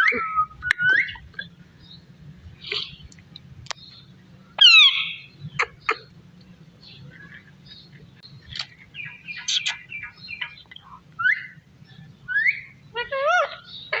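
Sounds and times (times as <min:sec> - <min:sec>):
parakeet chirping and clicking: 0:09.4 - 0:09.8.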